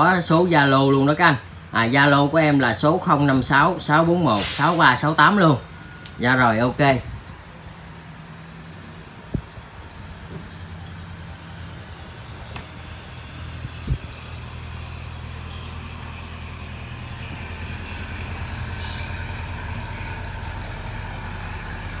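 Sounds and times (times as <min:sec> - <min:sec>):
vehicle engine humming: 0:05.3 - 0:22.0.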